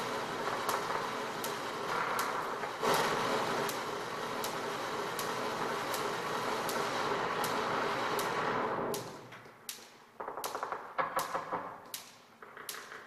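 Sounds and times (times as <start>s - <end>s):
sharp clicks: 8.2s - 13.0s
knocks: 10.2s - 13.0s.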